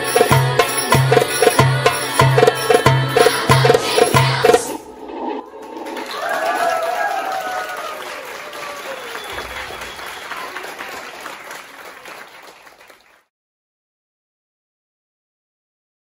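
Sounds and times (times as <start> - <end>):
audience applause: 5.5 - 13.3
person cheering: 6.0 - 9.7.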